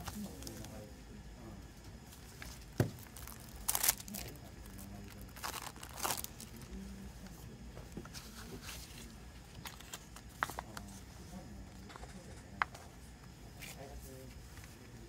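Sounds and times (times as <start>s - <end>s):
cellophane wrap crinkling: 2.1s - 6.8s.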